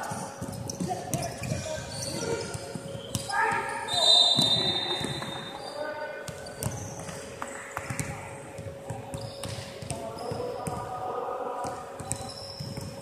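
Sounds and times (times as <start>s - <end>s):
basketballs bouncing on wood floor: 0.0s - 3.7s, 4.3s - 5.5s, 6.3s - 7.2s, 7.8s - 10.9s, 11.6s - 13.0s.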